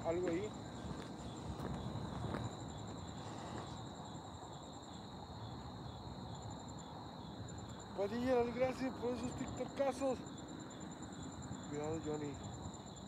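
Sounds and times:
crickets chirping: 0:00.0 - 0:13.0
higher pulsing insect trill: 0:00.0 - 0:13.0.

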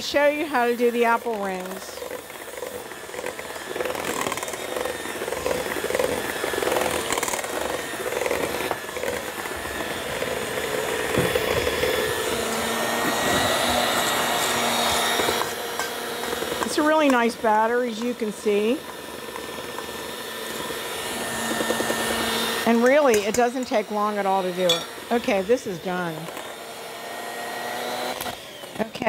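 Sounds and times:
electric hand mixer running: 0:00.0 - 0:29.0.

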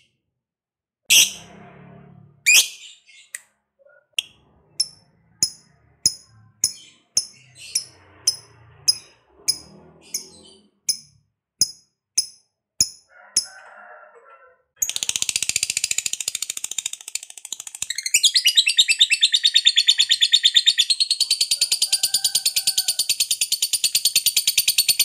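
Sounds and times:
bird chirping high-pitched: 0:01.1 - 0:01.5, 0:02.5 - 0:13.0, 0:14.8 - 0:25.0.

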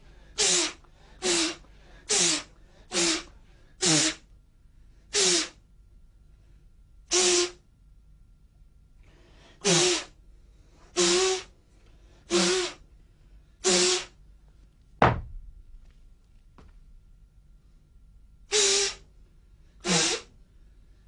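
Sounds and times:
sharp thud: 0:15.0 - 0:15.5.

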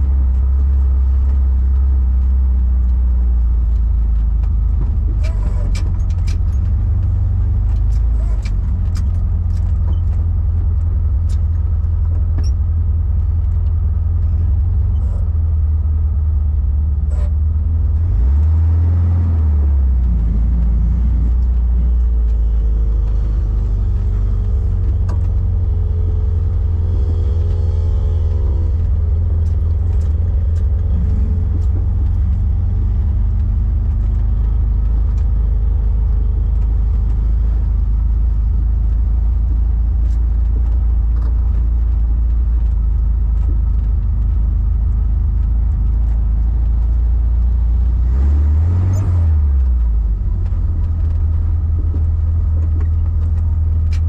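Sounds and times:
car engine and road drone: 0:00.0 - 0:54.0
light ticking rattles: 0:00.0 - 0:54.0.

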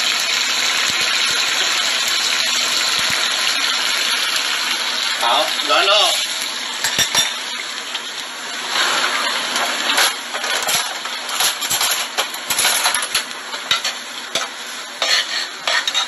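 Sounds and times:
utensils clinking on ceramic plates: 0:06.8 - 0:07.4, 0:09.9 - 0:16.0.

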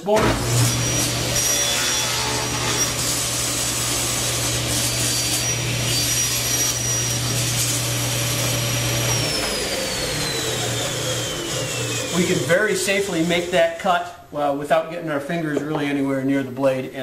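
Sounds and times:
table saw cutting board: 0:00.0 - 0:13.8
saw blade spinning down: 0:00.2 - 0:13.6.

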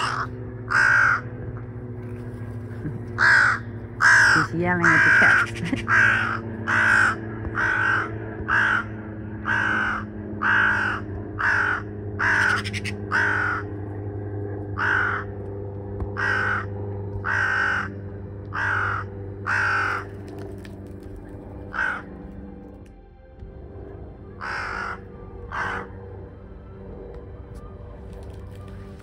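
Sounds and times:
crow cawing harshly: 0:00.0 - 0:01.3, 0:03.2 - 0:13.8, 0:14.8 - 0:15.4, 0:16.2 - 0:20.3, 0:21.7 - 0:22.1, 0:24.4 - 0:26.0.

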